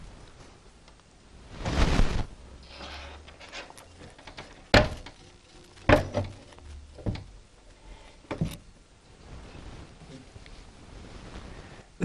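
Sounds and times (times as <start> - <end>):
knocks inside wooden clock case: 4.7 - 5.2.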